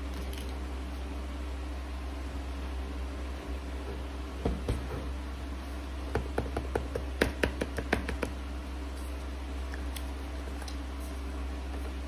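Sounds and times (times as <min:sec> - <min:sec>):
steady low hum: 0:00.0 - 0:12.0
taps on cardboard box: 0:06.1 - 0:08.4.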